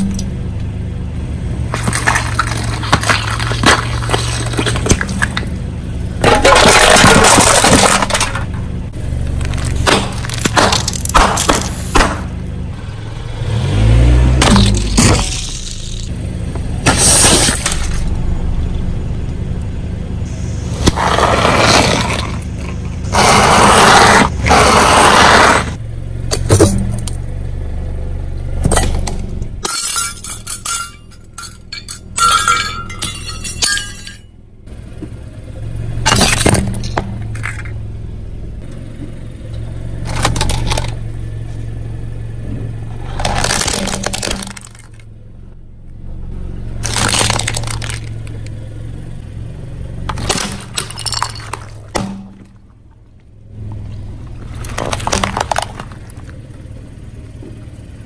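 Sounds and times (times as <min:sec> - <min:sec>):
car engine running low: 0:00.0 - 0:58.0
tyre crushing objects cracking: 0:01.7 - 0:05.6, 0:06.2 - 0:08.6, 0:09.3 - 0:12.3, 0:20.8 - 0:27.2, 0:42.9 - 0:45.1, 0:46.8 - 0:48.5, 0:50.0 - 0:52.7, 0:54.3 - 0:56.4
metallic clinking and scraping: 0:28.7 - 0:34.3.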